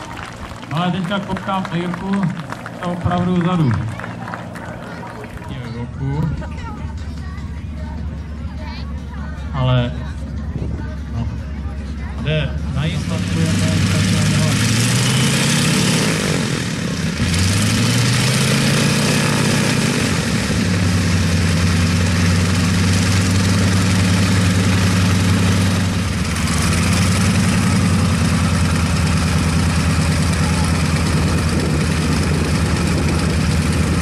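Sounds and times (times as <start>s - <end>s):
light aircraft engine and propeller: 0.0s - 34.0s.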